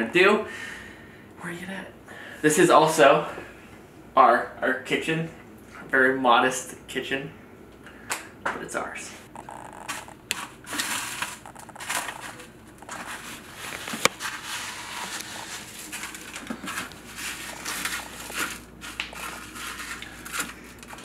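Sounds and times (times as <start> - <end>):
breadcrumbs rustling and crunching: 9.4 - 21.0.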